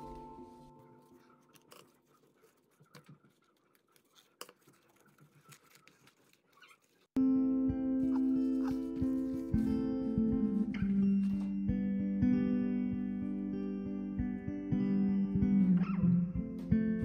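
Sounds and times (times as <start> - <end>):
newspaper and plastic rustling: 0.0 - 7.2.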